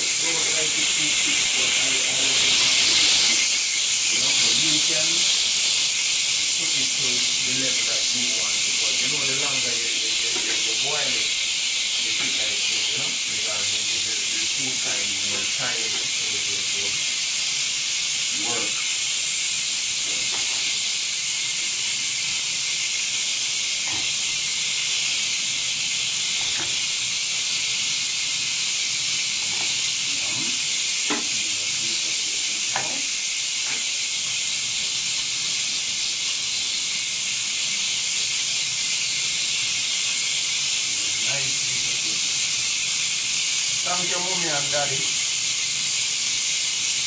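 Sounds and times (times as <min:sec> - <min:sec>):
tap running into metal sink: 0:10.3 - 0:10.9, 0:26.3 - 0:26.9, 0:29.4 - 0:29.9, 0:31.0 - 0:31.4, 0:32.7 - 0:33.9.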